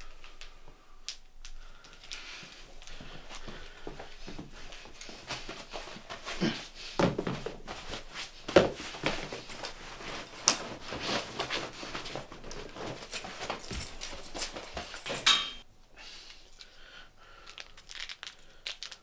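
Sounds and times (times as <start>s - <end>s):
man breathing: 0.0s - 15.1s, 16.0s - 18.8s
clothing rustling: 1.5s - 15.7s.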